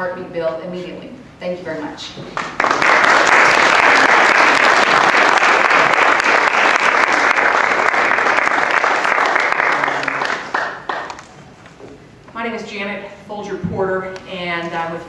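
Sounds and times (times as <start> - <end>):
children applauding: 2.4 - 11.3.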